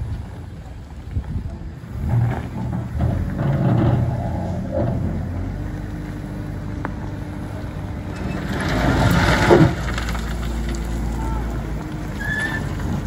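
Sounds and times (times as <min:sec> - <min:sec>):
diesel engine running: 0:00.0 - 0:13.0
bucket scraping gravel and rock: 0:08.1 - 0:11.2.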